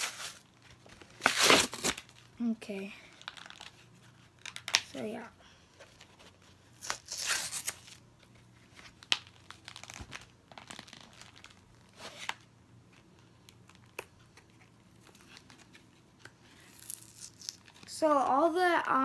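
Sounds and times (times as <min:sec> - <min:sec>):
plastic packaging crinkling and tearing: 0:00.0 - 0:02.3, 0:03.1 - 0:05.0, 0:06.7 - 0:08.0, 0:08.8 - 0:12.4, 0:16.6 - 0:18.0.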